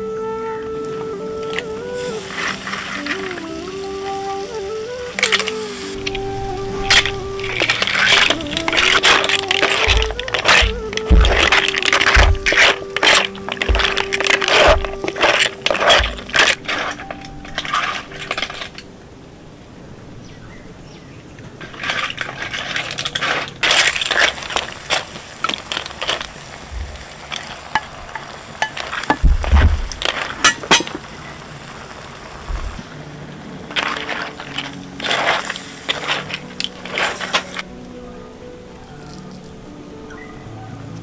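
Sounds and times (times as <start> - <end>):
clam shells clattering in pot: 6.9 - 18.8, 21.6 - 31.1, 33.7 - 37.6.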